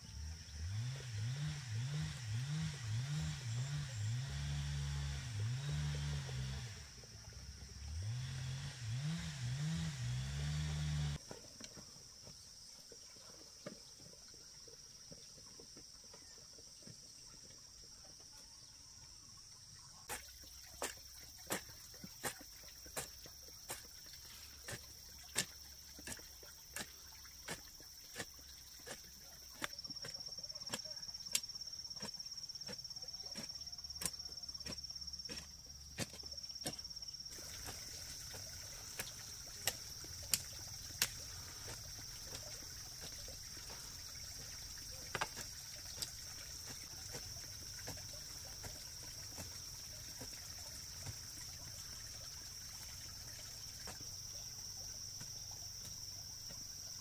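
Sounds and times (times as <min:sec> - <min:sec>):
high drone of insects: 0:00.0 - 0:57.0
hoe chopping into soil: 0:20.1 - 0:51.3.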